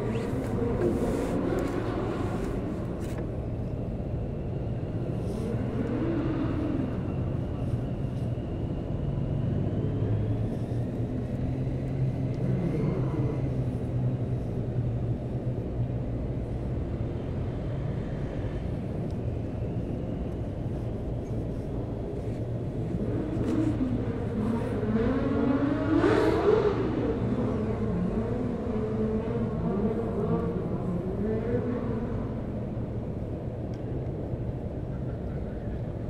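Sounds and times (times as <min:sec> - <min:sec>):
vehicle speeding up and passing: 0:00.0 - 0:03.2, 0:22.2 - 0:33.6
motor traffic rumble: 0:00.0 - 0:36.0.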